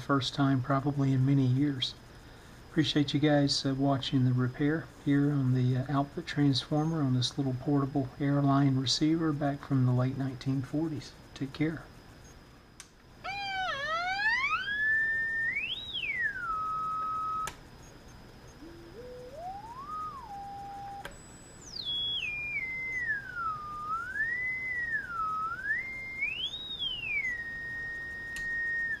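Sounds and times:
signal generator tone sweeping: 0:13.2 - 0:29.0.

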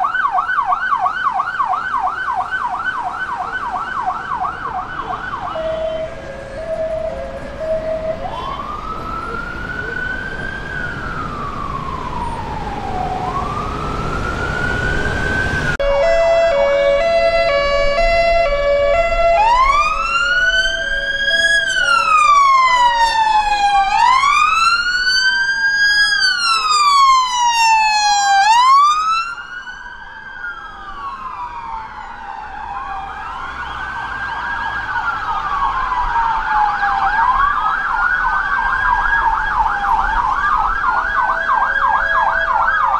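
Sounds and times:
police sirens wailing: 0:00.0 - 0:42.9
two-note siren pattern: 0:04.4 - 0:09.9, 0:11.0 - 0:25.2, 0:38.9 - 0:42.9.

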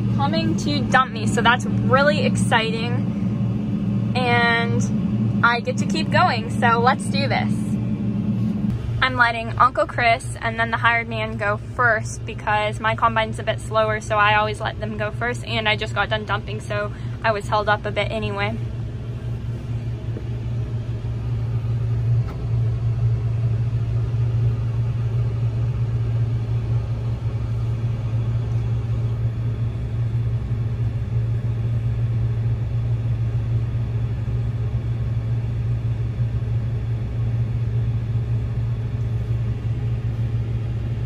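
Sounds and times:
diesel engine drone: 0:00.0 - 0:41.0.

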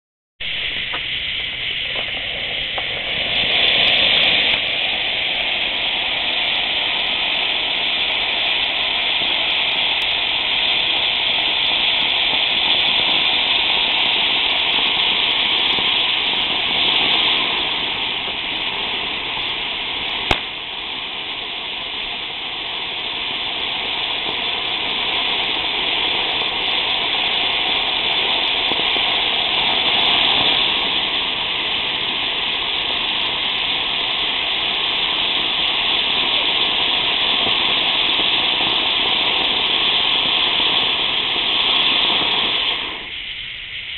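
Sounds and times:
sharp pop: 0:00.4 - 0:05.1, 0:20.1 - 0:21.2
firework fountain hissing: 0:00.4 - 0:43.9.

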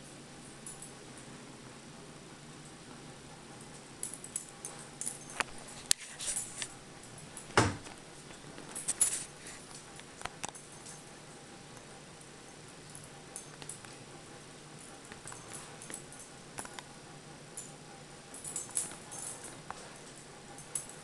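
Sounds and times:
thump: 0:07.6 - 0:07.9.

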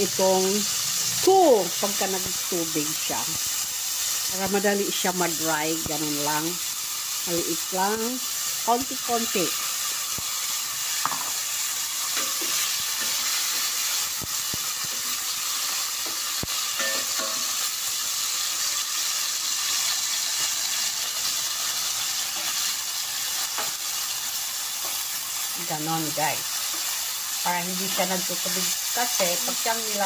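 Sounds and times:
meat sizzling in a frying pan: 0:00.0 - 0:30.0
spatula and tongs clicking on pan: 0:12.0 - 0:17.8, 0:22.2 - 0:24.0.

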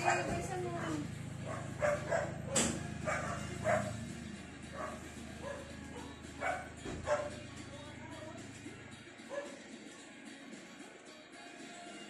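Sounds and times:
dog yipping and barking: 0:00.0 - 0:00.5, 0:01.4 - 0:04.0, 0:04.7 - 0:07.4, 0:09.3 - 0:09.6.

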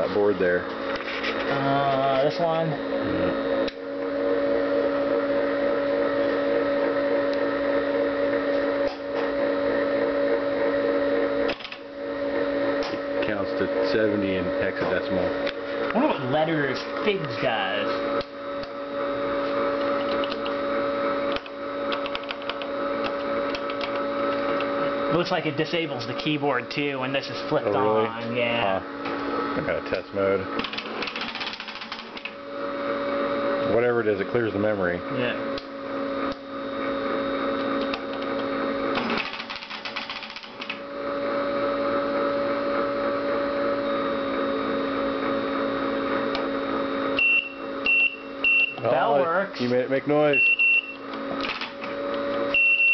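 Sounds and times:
teletype machine humming: 0:11.4 - 0:11.9, 0:30.2 - 0:32.4, 0:38.9 - 0:40.8, 0:51.4 - 0:51.9
rapid machine clicking: 0:30.6 - 0:32.3, 0:39.0 - 0:40.8
high electronic beep: 0:47.2 - 0:48.8, 0:50.3 - 0:51.0, 0:52.6 - 0:52.9.

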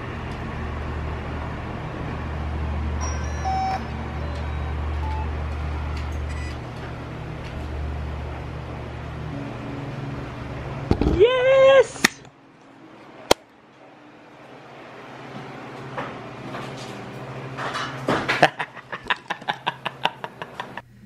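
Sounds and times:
low hum: 0:00.0 - 0:17.6
gimbal motor whines: 0:02.9 - 0:11.2.

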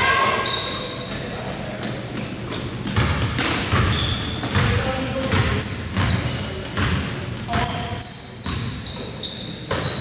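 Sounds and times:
sneaker squeaks: 0:00.0 - 0:10.0
basketball dribbling: 0:02.8 - 0:10.0.

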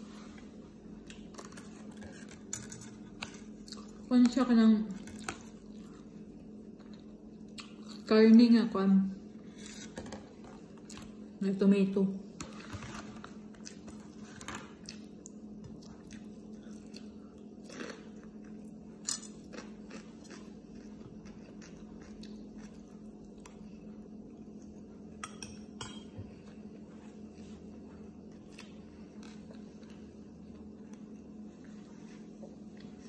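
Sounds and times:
steady low hum: 0:00.0 - 0:33.0
chewing: 0:14.8 - 0:24.6.

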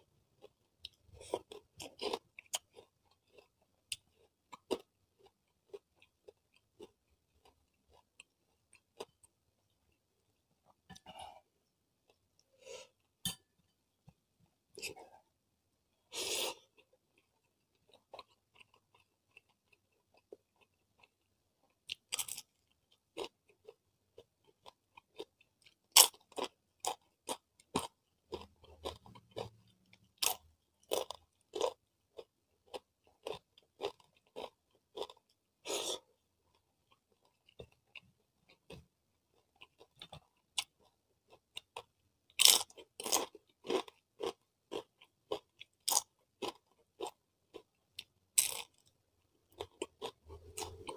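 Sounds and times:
person chewing crunchy food: 0:00.4 - 0:10.0, 0:16.1 - 0:50.9.

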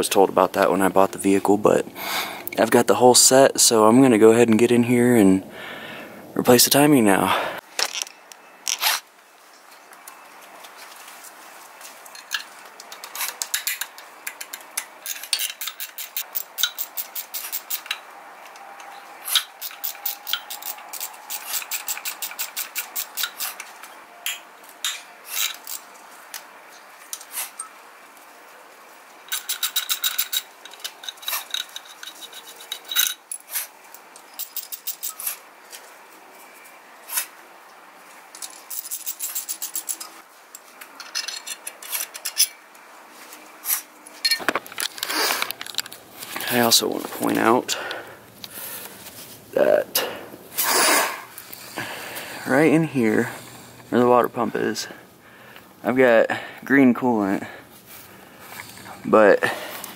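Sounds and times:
metal tools clinking: 0:12.1 - 0:18.1, 0:18.8 - 0:25.9, 0:29.3 - 0:35.4, 0:38.3 - 0:42.6, 0:44.2 - 0:48.0
ratchet wrench clicking: 0:14.5 - 0:18.0, 0:19.3 - 0:23.5, 0:29.3 - 0:33.2, 0:34.4 - 0:35.2.

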